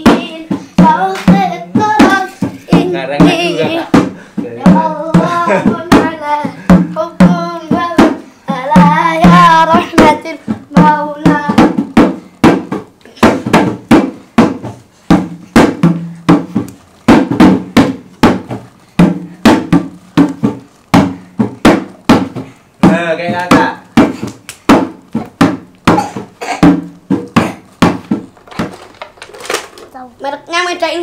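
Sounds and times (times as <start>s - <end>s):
person singing: 0.0s - 11.8s
fast drum beat: 0.0s - 28.4s.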